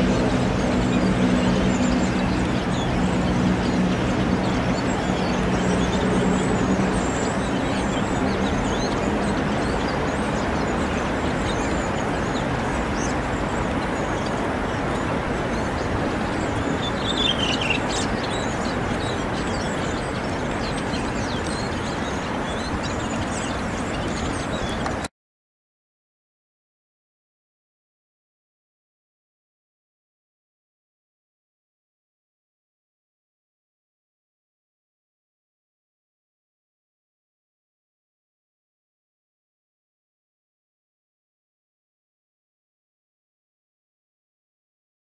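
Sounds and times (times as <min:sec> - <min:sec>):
faint high bird chirps: 0:00.0 - 0:25.1
outdoor background rumble: 0:00.0 - 0:25.1.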